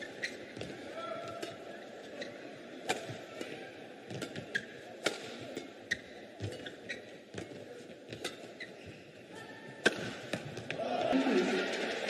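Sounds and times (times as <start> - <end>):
shoes squeaking on court: 0.0 - 10.5
rackets hitting shuttlecock: 2.8 - 8.6, 9.8 - 10.8.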